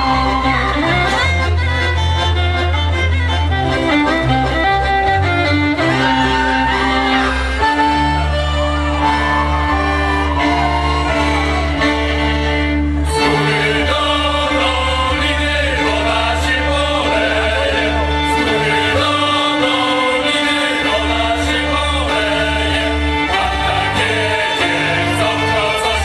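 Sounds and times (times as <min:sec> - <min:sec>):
folk dance instrumental music: 0:00.0 - 0:26.0
group of voices singing: 0:08.9 - 0:26.0.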